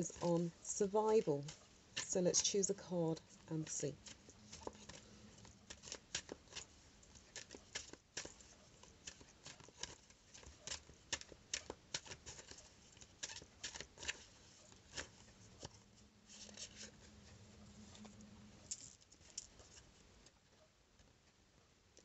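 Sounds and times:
cards being shuffled by hand: 0:00.0 - 0:02.6, 0:03.2 - 0:17.1.

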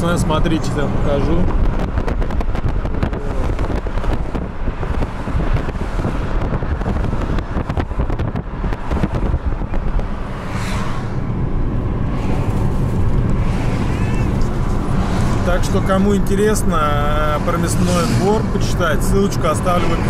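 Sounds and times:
car road and tyre noise: 0:00.0 - 0:20.0
wind buffeting microphone: 0:00.4 - 0:15.4.

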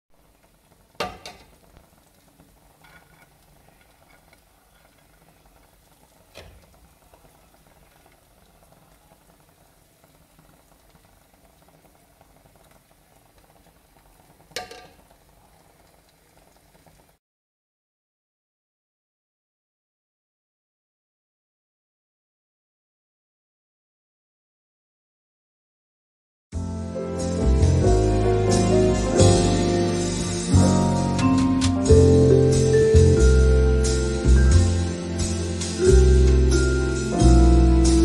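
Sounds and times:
low steady hiss: 0:00.1 - 0:17.2, 0:28.2 - 0:38.0
serving utensil clinking on plate: 0:14.6 - 0:15.0.

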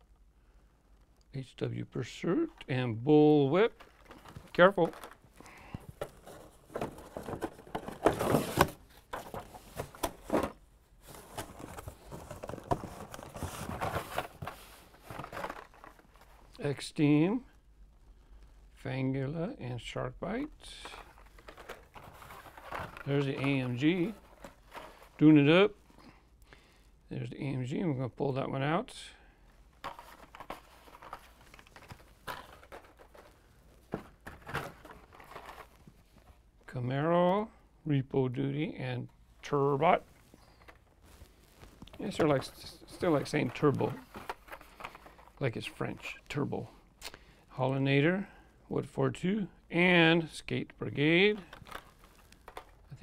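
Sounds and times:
packaging scraping and rustling: 0:03.8 - 0:05.3, 0:05.9 - 0:16.5, 0:20.9 - 0:25.2, 0:29.8 - 0:35.9, 0:39.9 - 0:45.5, 0:51.4 - 0:52.9.

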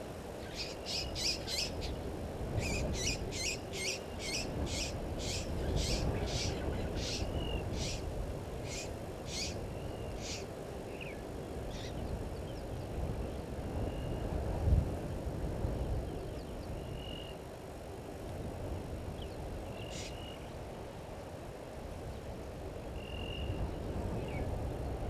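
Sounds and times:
lapwing metallic tink calls: 0:00.4 - 0:02.0, 0:02.6 - 0:12.0.

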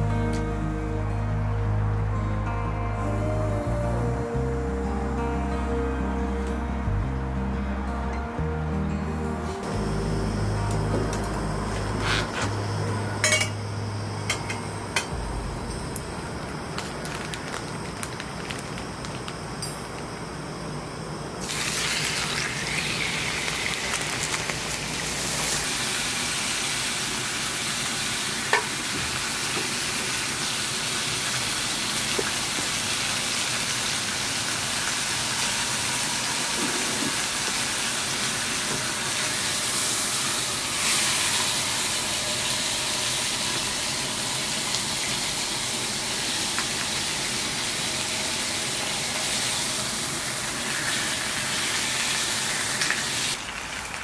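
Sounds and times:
food sizzling in a pan: 0:21.4 - 0:54.0.

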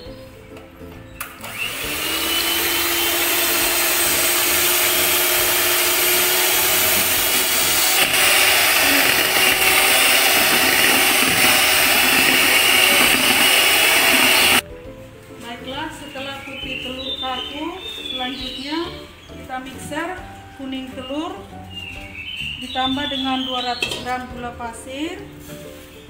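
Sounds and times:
electric hand mixer whine: 0:01.4 - 0:14.6.

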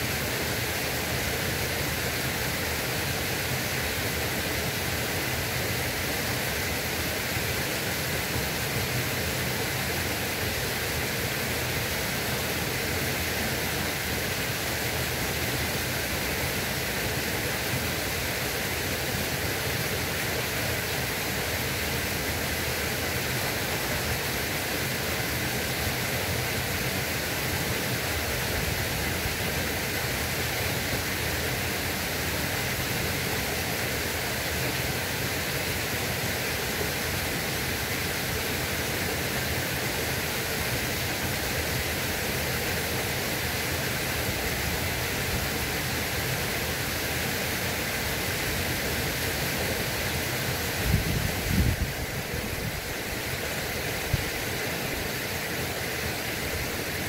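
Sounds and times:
flowing water rushing: 0:00.0 - 0:57.0.

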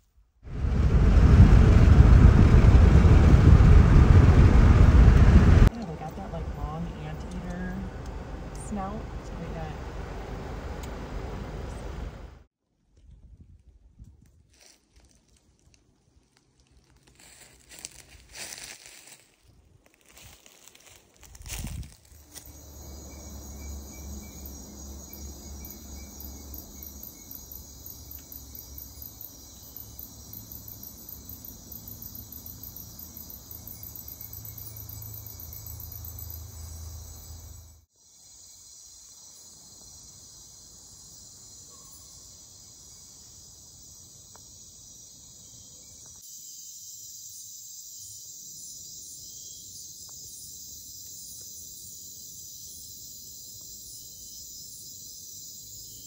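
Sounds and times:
low rumble: 0:00.5 - 0:12.5, 0:21.6 - 0:28.0
crickets and insects trilling: 0:20.0 - 0:56.0.

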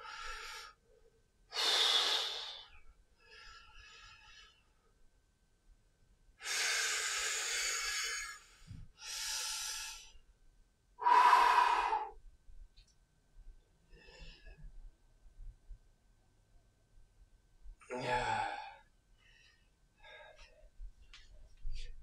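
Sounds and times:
man breathing heavily: 0:01.6 - 0:02.7, 0:06.4 - 0:10.1, 0:11.0 - 0:12.2, 0:18.3 - 0:20.8.

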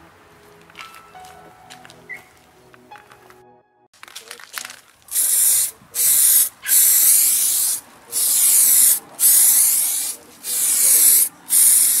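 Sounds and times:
aerosol spray can spraying: 0:05.1 - 0:12.0.

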